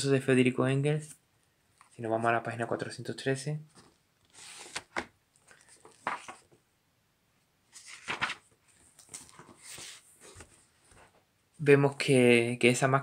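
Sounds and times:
book pages flipping: 3.7s - 6.6s, 7.7s - 11.1s.

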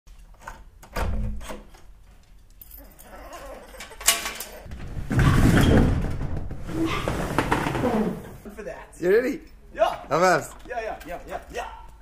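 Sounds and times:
keys jangling: 2.3s - 4.7s
metal gate rattling: 2.7s - 4.7s
door opening: 3.1s - 8.4s.

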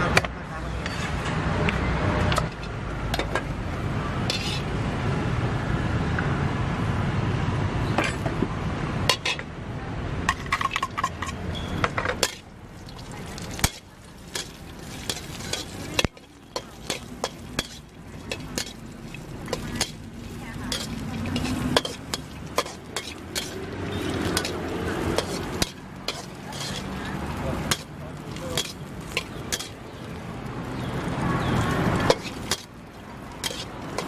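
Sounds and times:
metal ladle scraping a wok: 4.2s - 4.7s, 10.3s - 30.1s, 30.8s - 34.0s
pork sizzling in hot oil: 11.5s - 34.0s.

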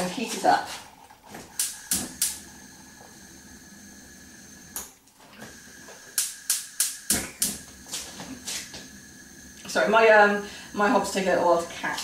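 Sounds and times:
gas hob igniter clicking: 1.4s - 3.2s, 4.7s - 8.9s.

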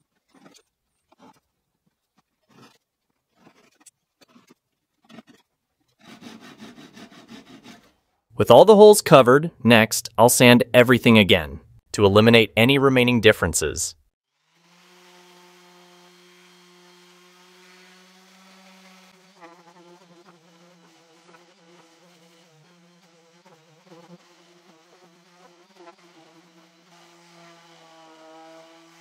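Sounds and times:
orbital sander buzzing on wood: 14.4s - 29.0s.

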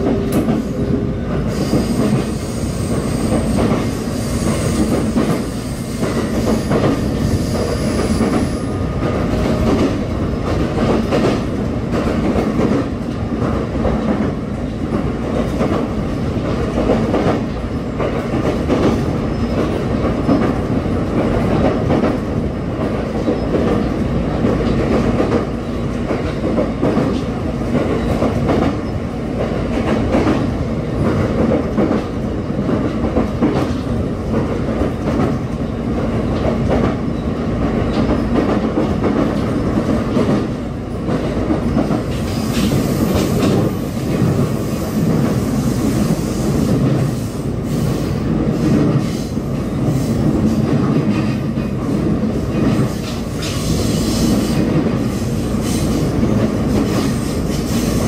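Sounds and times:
clickety-clack of rail joints: 0.0s - 58.0s
train wheels rumbling on rail: 0.0s - 58.0s.

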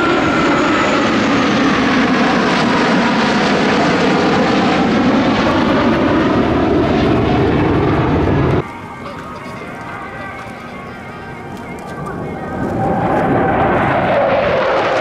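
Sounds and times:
jet fighters flying past: 0.0s - 15.0s.

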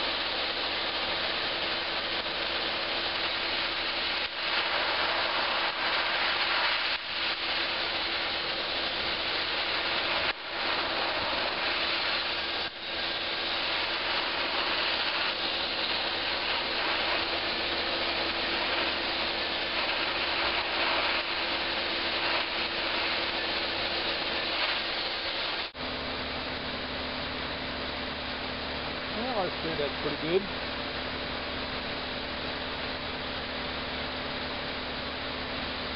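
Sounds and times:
sandblaster hissing: 0.0s - 25.8s, 29.1s - 30.5s.

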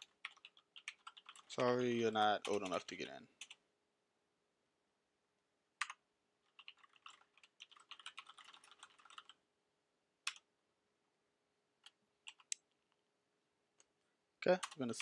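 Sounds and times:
computer keyboard typing: 0.0s - 3.6s, 5.8s - 9.4s, 10.2s - 10.5s, 11.8s - 12.6s, 14.5s - 15.0s.

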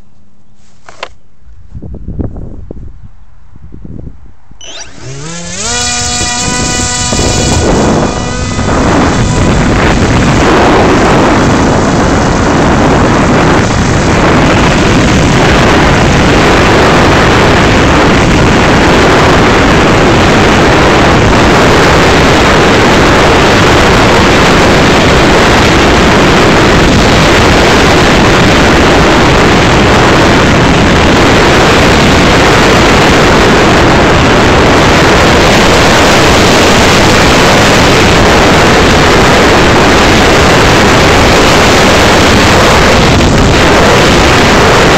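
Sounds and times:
wind rush and jet engine noise: 0.0s - 44.9s.

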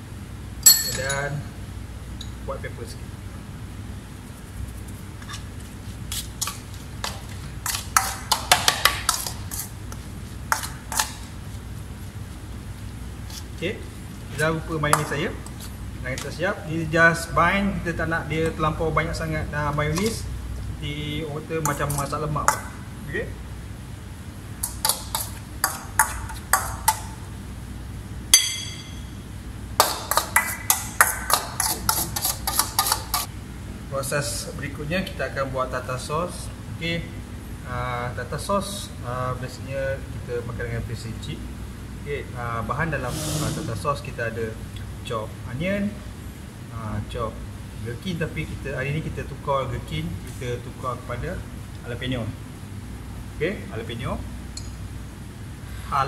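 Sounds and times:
loud ringing clink: 0.6s - 1.3s, 28.3s - 29.2s
utensil clinking against a bowl: 0.6s - 1.3s, 6.4s - 9.7s, 24.6s - 27.2s, 28.4s - 29.1s, 29.8s - 33.3s.

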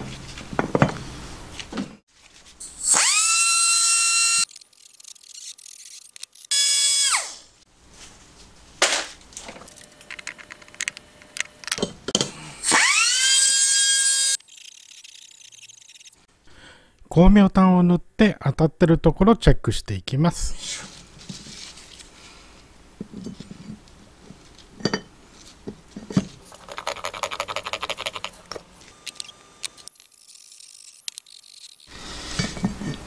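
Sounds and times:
rotary tool grinding metal: 2.6s - 7.3s, 12.6s - 16.3s, 26.5s - 32.7s
metal parts clicking and tapping: 9.7s - 12.3s.

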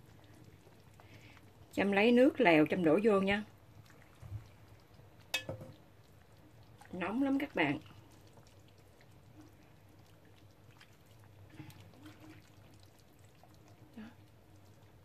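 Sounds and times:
low steady hum: 0.0s - 15.0s
soft liquid splashes: 3.4s - 15.0s.

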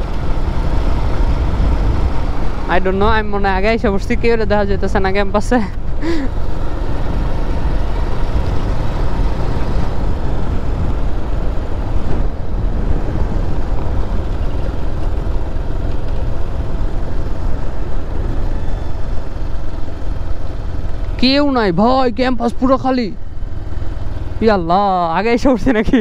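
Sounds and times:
motorcycle engine running: 0.0s - 26.0s
wind on microphone: 7.0s - 19.4s.

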